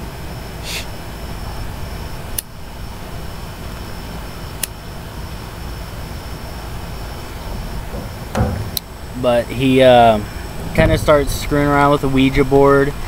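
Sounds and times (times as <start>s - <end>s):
sharp clicks: 2.3s - 2.6s
wind buffeting microphone: 6.1s - 13.0s.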